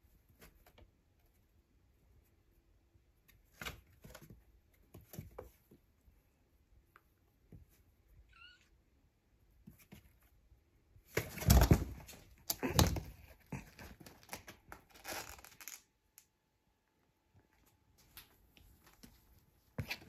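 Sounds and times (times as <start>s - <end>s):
kitten meowing: 8.3s - 8.7s.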